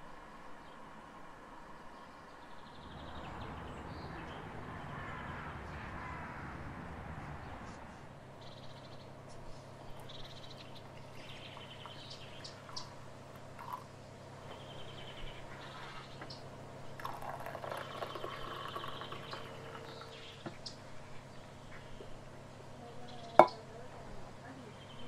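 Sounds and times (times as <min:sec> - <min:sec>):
birds chirping in trills: 0:01.8 - 0:06.4, 0:07.4 - 0:25.0
milk pouring into mug: 0:13.3 - 0:13.9, 0:16.9 - 0:20.2.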